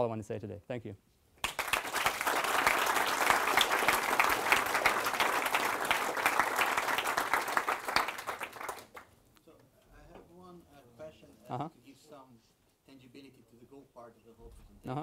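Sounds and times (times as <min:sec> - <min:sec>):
audience applauding: 0:01.4 - 0:09.1.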